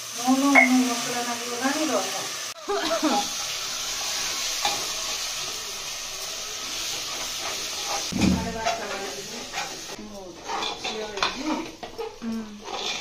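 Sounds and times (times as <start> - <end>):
meat sizzling: 0.0 - 13.0
spoon stirring and scraping: 6.7 - 13.0.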